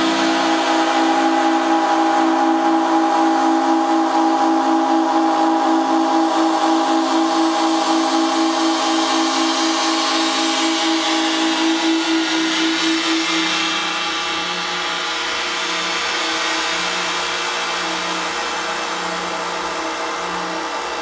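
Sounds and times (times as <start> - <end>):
pulsing droning pipe tones: 0.0 - 21.0.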